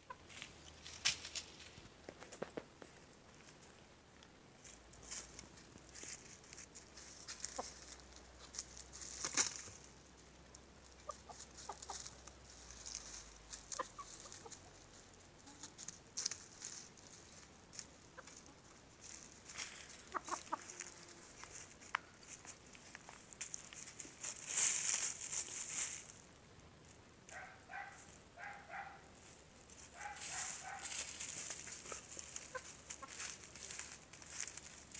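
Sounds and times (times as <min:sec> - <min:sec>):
soft chicken clucks: 0:00.0 - 0:00.8, 0:06.0 - 0:09.4, 0:10.4 - 0:23.1, 0:27.3 - 0:34.0
chickens scratching in dry leaves: 0:00.1 - 0:03.8, 0:04.6 - 0:26.4, 0:27.3 - 0:34.9.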